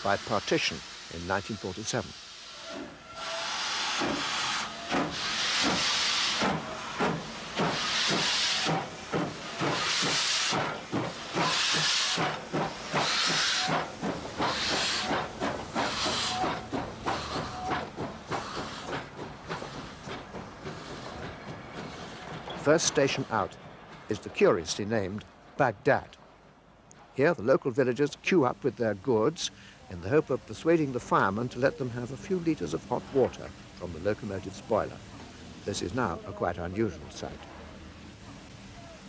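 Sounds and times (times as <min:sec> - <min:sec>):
steam locomotive hissing: 0:00.0 - 0:25.2, 0:27.7 - 0:39.0.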